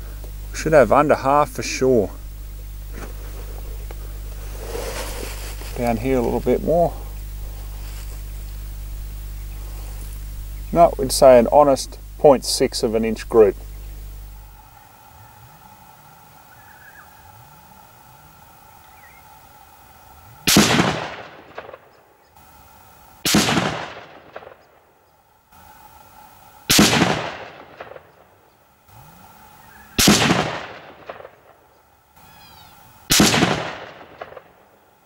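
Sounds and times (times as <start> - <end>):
gunshot echo: 20.5 - 21.9, 23.3 - 24.6, 26.7 - 28.1, 30.0 - 31.5, 33.1 - 34.6
rifle shots: 20.5 - 21.9, 23.2 - 24.6, 26.7 - 28.1, 30.0 - 31.6, 33.1 - 34.7.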